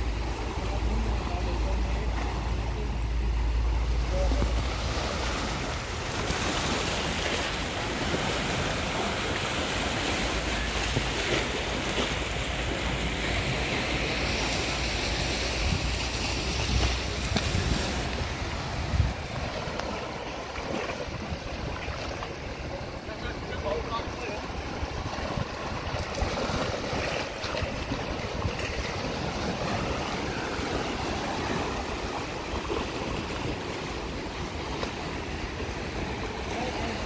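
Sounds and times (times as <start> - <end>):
waves breaking over rocks: 0.0 - 37.0
wind buffeting microphone: 5.0 - 20.3, 23.9 - 32.5.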